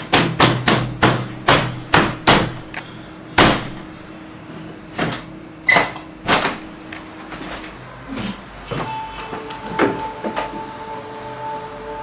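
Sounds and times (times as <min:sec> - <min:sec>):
fists banging on wooden shutters: 0:00.0 - 0:02.7, 0:03.4 - 0:03.8.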